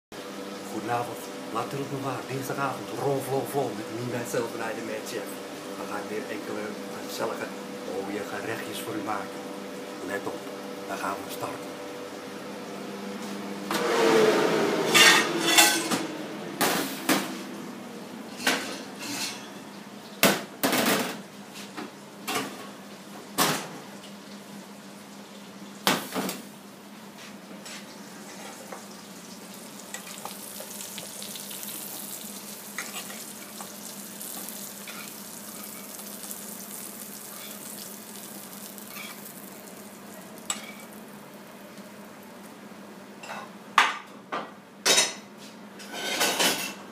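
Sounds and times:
pans and utensils clattering: 0:14.9 - 0:16.0, 0:18.4 - 0:19.7, 0:44.9 - 0:46.8
food sizzling in hot fat: 0:27.6 - 0:42.6.

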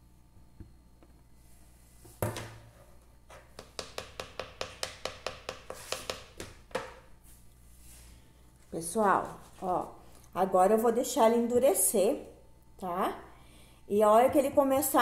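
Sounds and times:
spatula tapping soap: 0:03.5 - 0:06.5
spatula knock: 0:03.5 - 0:07.0.

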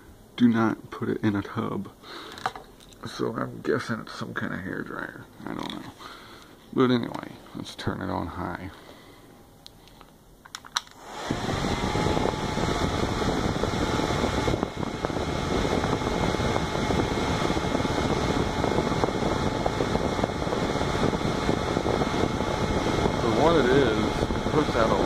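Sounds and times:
hair dryer running: 0:10.8 - 0:25.0.

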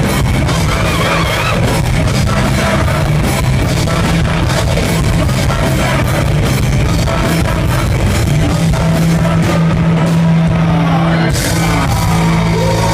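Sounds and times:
live rock band playing: 0:00.0 - 0:12.9.

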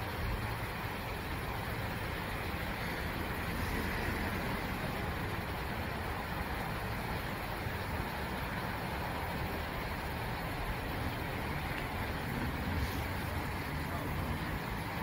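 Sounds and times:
road traffic noise: 0:00.0 - 0:15.0
vehicle passing: 0:02.8 - 0:06.2, 0:10.8 - 0:15.0.

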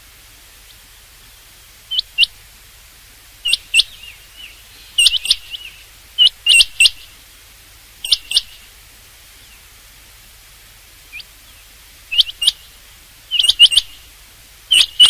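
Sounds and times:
quail calling: 0:01.9 - 0:02.4, 0:03.4 - 0:07.2, 0:08.0 - 0:08.7, 0:11.1 - 0:14.1, 0:14.7 - 0:15.0.

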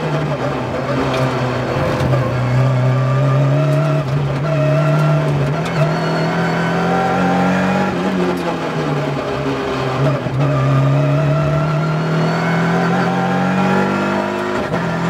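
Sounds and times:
race car engine accelerating: 0:00.0 - 0:15.0.

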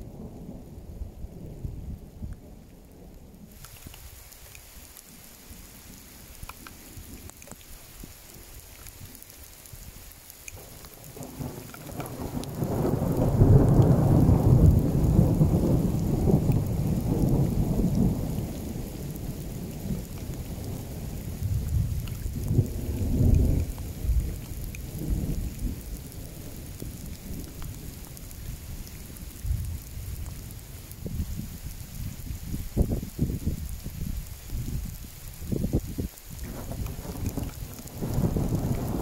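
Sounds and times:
steady rain: 0:00.0 - 0:39.0
thunder rumbling: 0:10.6 - 0:34.9, 0:35.5 - 0:39.0.

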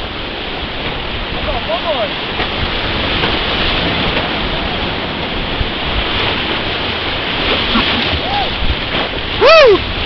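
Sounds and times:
river rapids rushing: 0:00.0 - 0:10.0.

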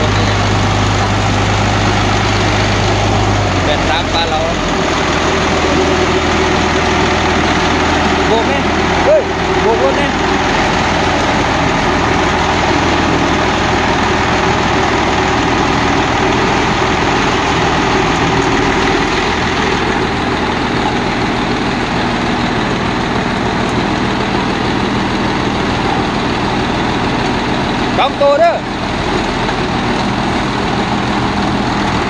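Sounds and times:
diesel engine idling: 0:00.0 - 0:32.0.

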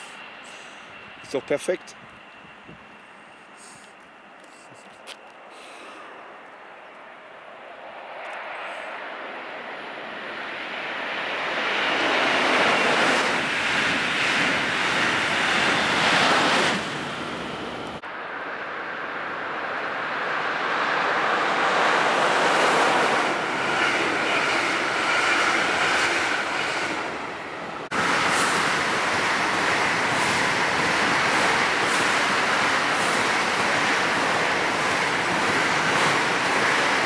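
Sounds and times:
faint steady whine: 0:00.0 - 0:10.1
electric trains passing: 0:00.0 - 0:37.0.

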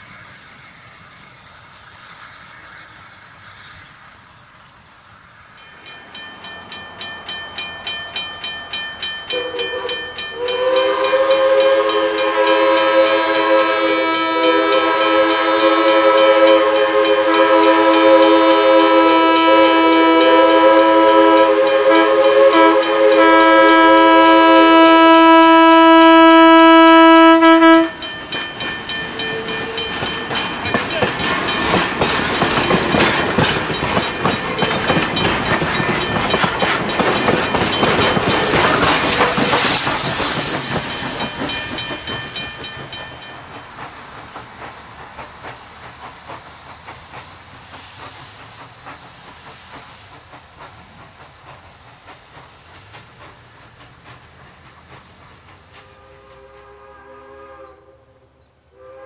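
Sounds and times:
steam hissing: 0:00.0 - 0:58.0
steam locomotive exhaust chuffs: 0:00.0 - 0:59.0
steam whistle chord: 0:09.3 - 0:31.6, 0:55.8 - 0:59.0.

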